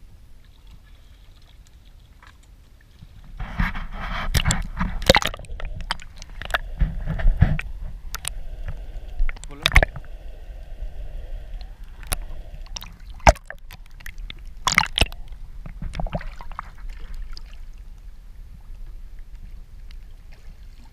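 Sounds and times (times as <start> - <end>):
water sloshing underwater: 0.0 - 20.9
sharp knocks and splashes: 0.6 - 8.4, 9.3 - 10.1, 12.0 - 17.6.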